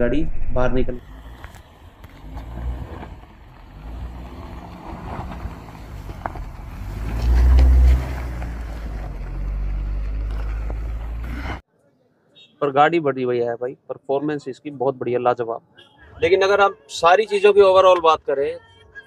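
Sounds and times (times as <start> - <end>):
car engine driving past: 0.2 - 11.6.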